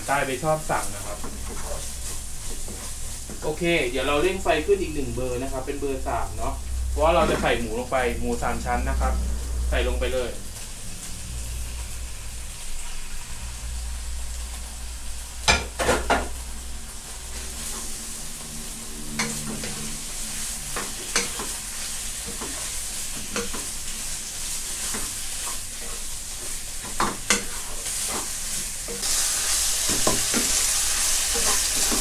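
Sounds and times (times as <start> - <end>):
meat sizzling in hot oil: 0.0 - 32.0
wooden spatula scraping pan: 0.8 - 4.4, 17.3 - 32.0.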